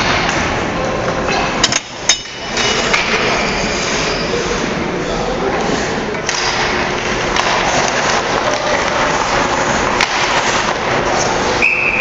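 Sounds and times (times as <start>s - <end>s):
hockey sticks and puck clacking: 0.0s - 4.1s, 6.1s - 12.0s
skating and crowd noise: 0.0s - 12.0s
referee's whistle: 11.6s - 12.0s.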